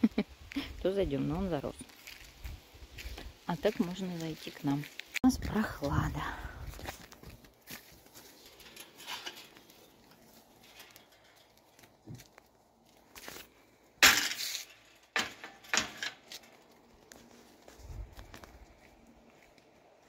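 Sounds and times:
footsteps on garden path: 0:00.3 - 0:15.0, 0:16.2 - 0:20.0
rustling: 0:06.6 - 0:20.0.

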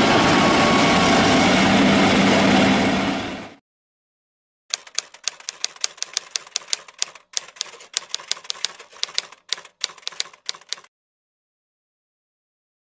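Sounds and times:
typewriter keystrokes clacking: 0:04.7 - 0:10.9.

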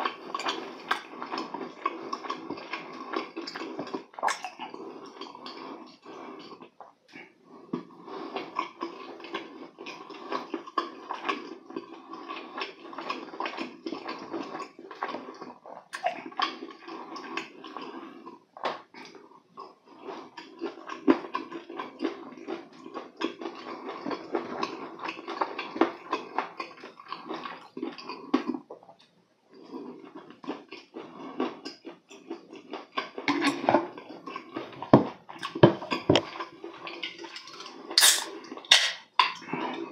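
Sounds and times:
biting and chewing fried chicken: 0:00.0 - 0:39.9.

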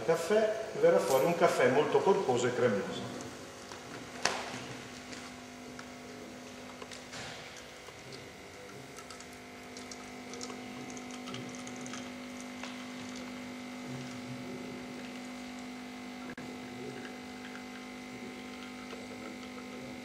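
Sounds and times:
espresso machine pump humming: 0:02.0 - 0:20.0
espresso pouring into cup: 0:07.5 - 0:20.0.

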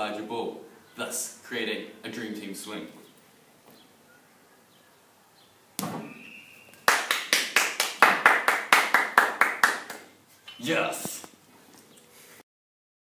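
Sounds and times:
barbell hitting exercise ball: 0:05.8 - 0:06.2
hand claps: 0:06.7 - 0:10.1.

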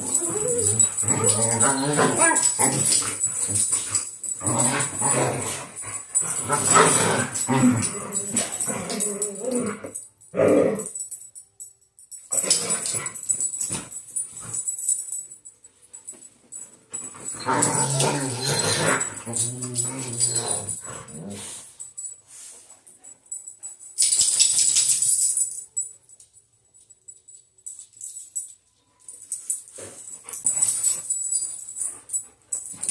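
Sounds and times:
dogs growling: 0:00.0 - 0:11.0, 0:17.2 - 0:21.7.

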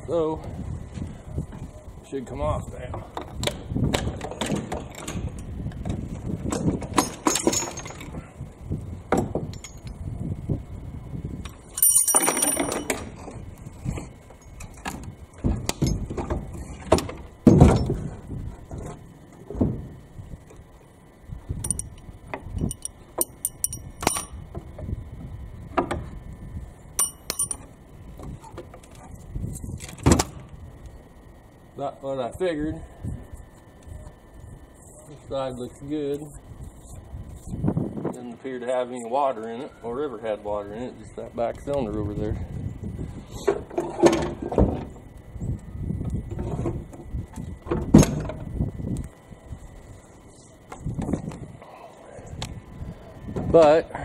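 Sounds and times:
ringing metal clinks: 0:11.7 - 0:13.0, 0:21.6 - 0:22.0, 0:22.6 - 0:24.4, 0:27.0 - 0:27.7.

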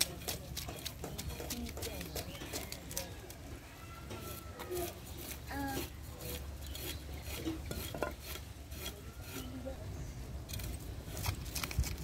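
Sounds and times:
knife scraping fish scales: 0:00.0 - 0:03.1, 0:04.2 - 0:09.7.

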